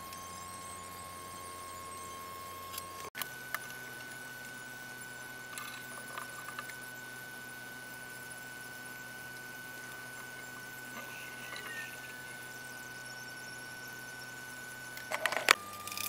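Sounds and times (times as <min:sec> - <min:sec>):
room hum with high whine: 0:00.0 - 0:16.0.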